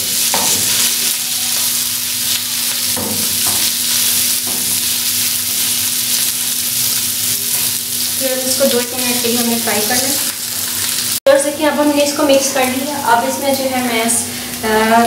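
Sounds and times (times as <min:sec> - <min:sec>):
meat sizzling in oil: 0:00.0 - 0:11.2.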